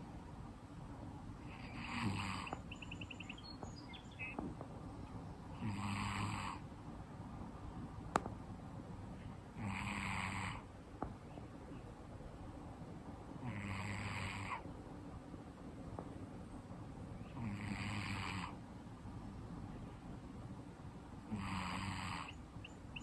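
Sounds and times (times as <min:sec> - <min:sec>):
cat snoring: 0:01.4 - 0:02.6, 0:05.6 - 0:06.6, 0:09.6 - 0:10.7, 0:13.4 - 0:14.6, 0:17.4 - 0:18.6, 0:21.3 - 0:22.4.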